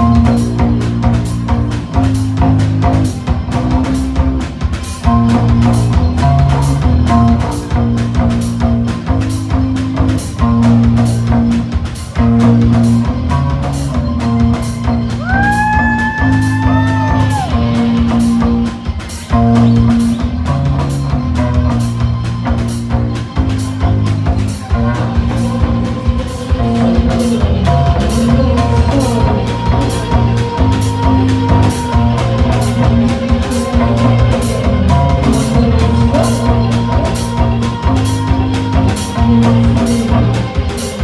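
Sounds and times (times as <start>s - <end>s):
distorted electric guitar: 0.0s - 41.0s
drum kit with cymbals: 0.0s - 41.0s.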